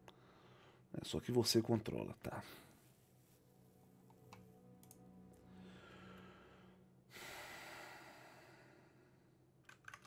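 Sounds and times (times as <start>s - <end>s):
person breathing: 0.0s - 0.9s, 5.4s - 9.4s.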